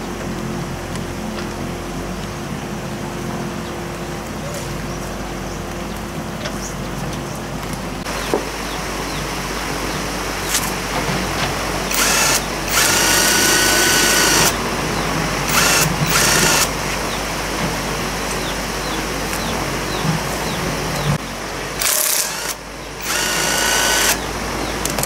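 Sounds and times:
cordless drill running: 0:11.9 - 0:14.6, 0:15.4 - 0:16.8, 0:21.8 - 0:24.3
sharp tool clicks: 0:11.9 - 0:14.6, 0:15.5 - 0:16.7, 0:21.8 - 0:24.2.

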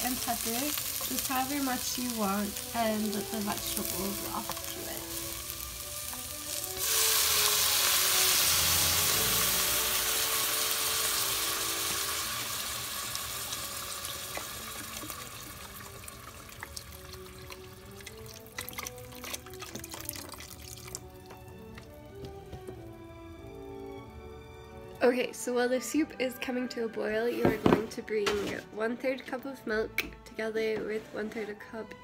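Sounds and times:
pot sizzling hiss: 0:00.0 - 0:21.7
liquid pouring: 0:11.2 - 0:23.0.

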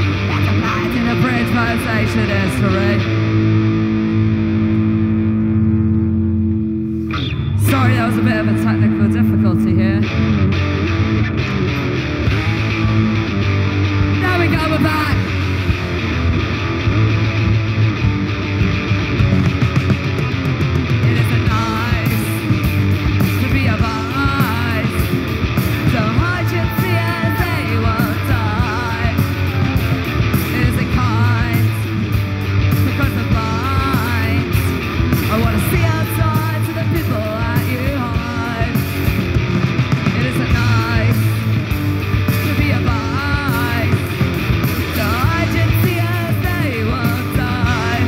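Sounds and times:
person singing: 0:00.0 - 0:03.2, 0:07.5 - 0:10.2, 0:14.2 - 0:15.4, 0:21.0 - 0:32.0, 0:32.7 - 0:38.9, 0:40.0 - 0:41.5, 0:42.3 - 0:48.0
punk rock band playing: 0:00.0 - 0:48.0.

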